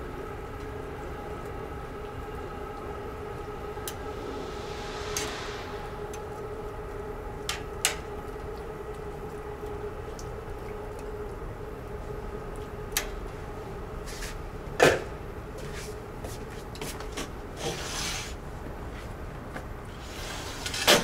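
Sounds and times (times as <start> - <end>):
steady low hum: 0.0 - 17.6
brief hiss: 3.9 - 6.6.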